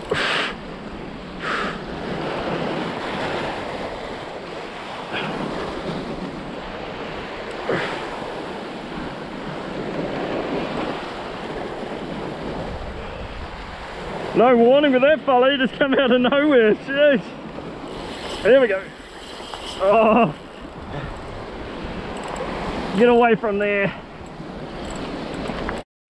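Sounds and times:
wind buffeting microphone: 0.0 - 14.4, 17.2 - 23.1
waves sloshing against rocks: 0.0 - 15.8, 16.4 - 25.8.

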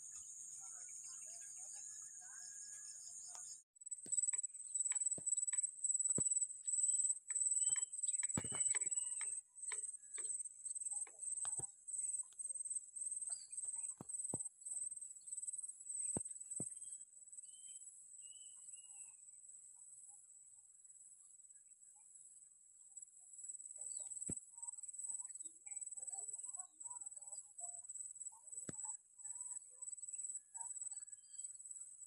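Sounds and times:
insect chirping: 0.1 - 19.0.

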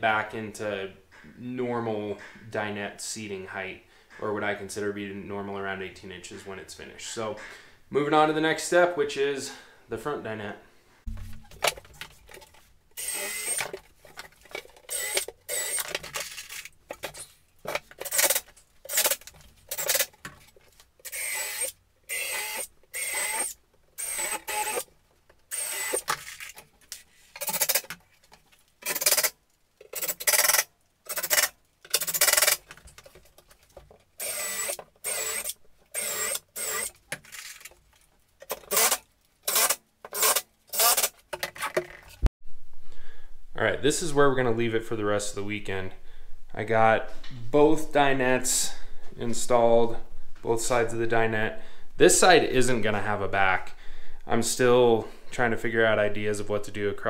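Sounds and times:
cordless drill driving screws: 13.0 - 13.8, 14.8 - 16.3, 18.0 - 20.1, 21.0 - 24.9, 25.5 - 26.5, 27.4 - 27.9, 28.8 - 29.3, 29.9 - 32.6, 34.2 - 37.0, 38.5 - 41.1.

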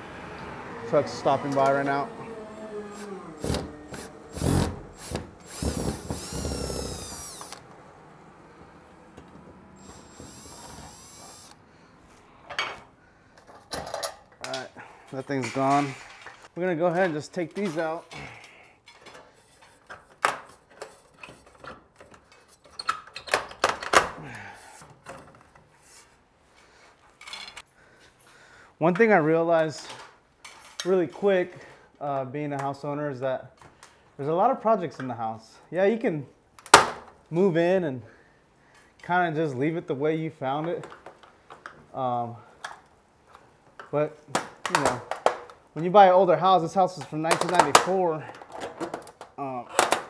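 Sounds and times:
clicks and clinks of fixture parts: 13.4 - 14.7.

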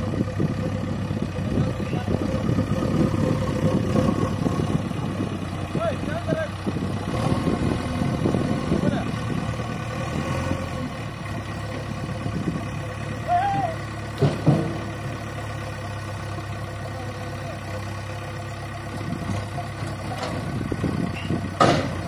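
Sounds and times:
diesel engine running: 0.0 - 22.0
logs knocking: 14.2 - 15.0.

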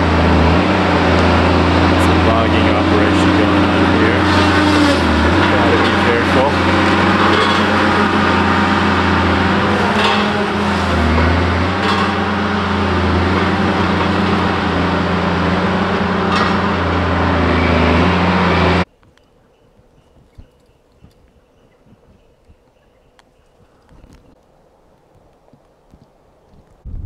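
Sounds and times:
vehicle engine running: 0.0 - 18.9
vehicle rattles: 0.0 - 18.9.

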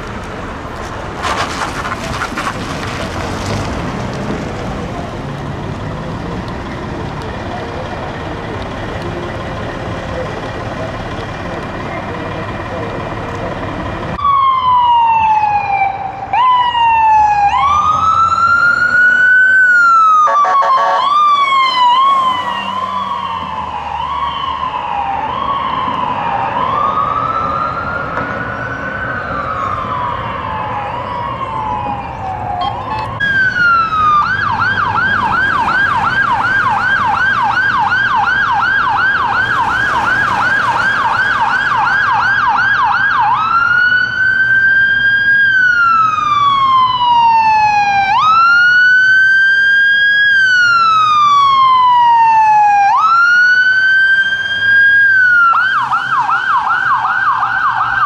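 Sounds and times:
electronic siren wailing: 14.2 - 58.0
rapid yelping siren: 14.2 - 58.0
vehicle horn blast: 20.3 - 21.1.

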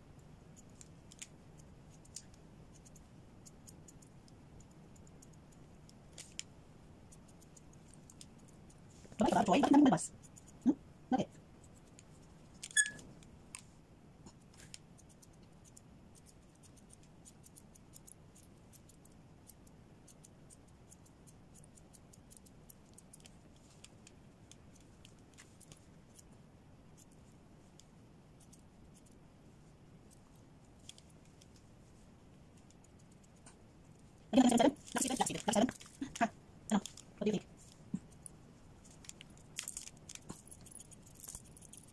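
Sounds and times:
scissors snipping through fur: 39.0 - 41.9.

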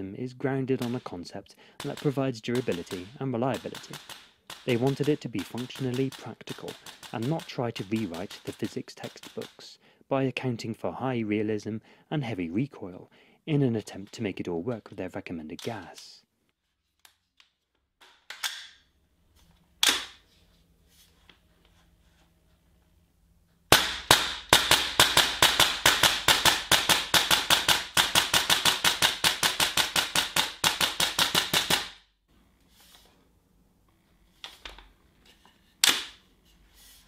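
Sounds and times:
airsoft rifle rapid shots: 1.8 - 9.7, 23.7 - 32.0.

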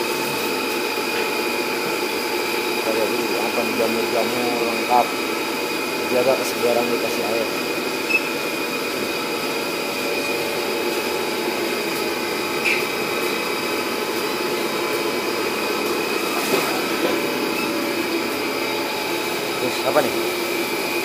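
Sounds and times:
machine whirring hum: 0.0 - 21.0.

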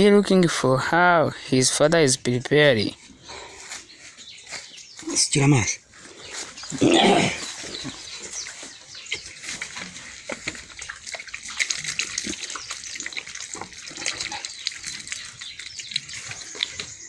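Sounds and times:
water trickling and splashing: 7.4 - 17.0.

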